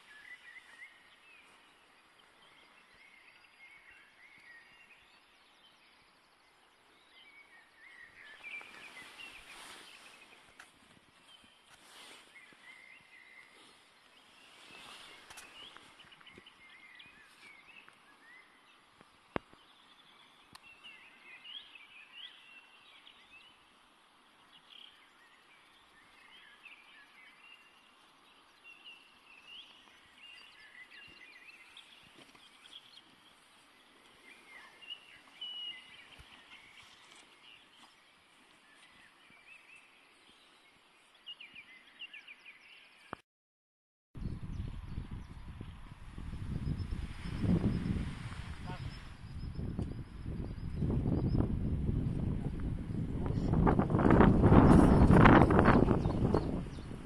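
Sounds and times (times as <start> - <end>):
bird chirps: 0.0 - 10.6, 24.5 - 43.2
low steady hiss: 0.0 - 41.9.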